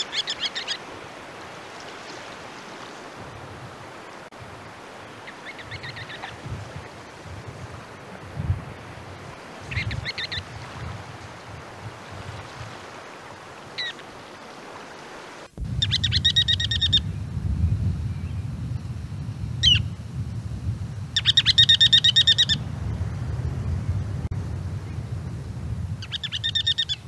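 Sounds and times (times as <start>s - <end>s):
steady low rumble: 15.6s - 26.5s.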